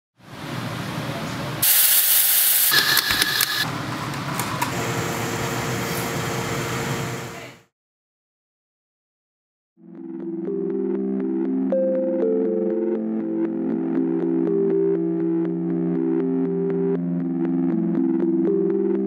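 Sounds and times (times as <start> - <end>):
steam wand hissing: 1.6 - 3.6
espresso machine humming: 1.6 - 3.7, 4.4 - 7.4.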